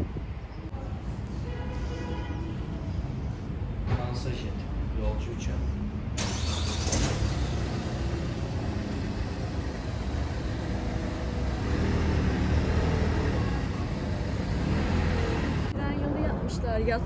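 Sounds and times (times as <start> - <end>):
low rumbling noise: 6.2 - 17.0.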